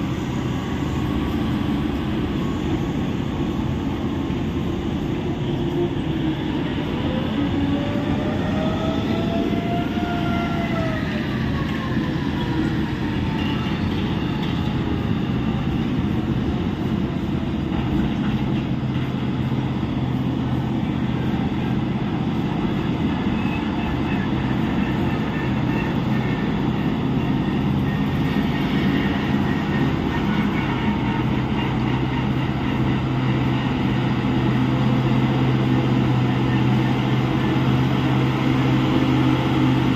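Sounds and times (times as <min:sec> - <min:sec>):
heavy diesel truck engine rumble: 0:11.0 - 0:39.9.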